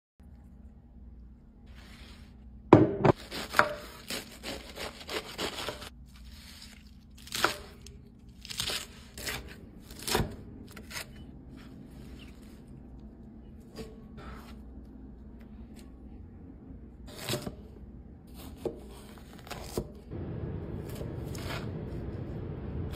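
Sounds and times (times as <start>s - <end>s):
knife chopping on wooden board: 2.7s - 5.9s.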